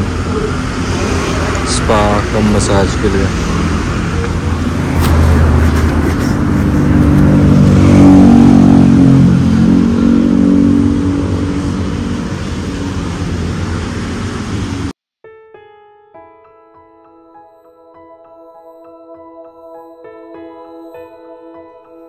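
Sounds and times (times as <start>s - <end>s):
vehicle engine: 0.0s - 15.0s.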